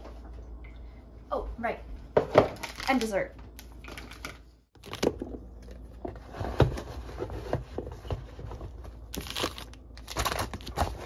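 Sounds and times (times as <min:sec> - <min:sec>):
food containers knocking and scraping: 0:04.2 - 0:09.0.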